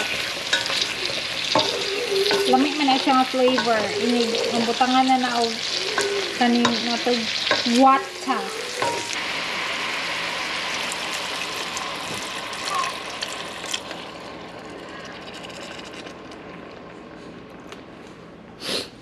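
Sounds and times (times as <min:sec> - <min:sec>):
water hissing in hot pan: 0:00.0 - 0:14.8.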